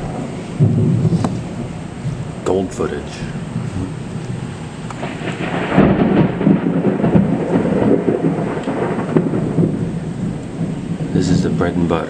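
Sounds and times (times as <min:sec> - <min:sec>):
rain: 0:00.0 - 0:12.0
thunder rumbling: 0:00.0 - 0:12.0.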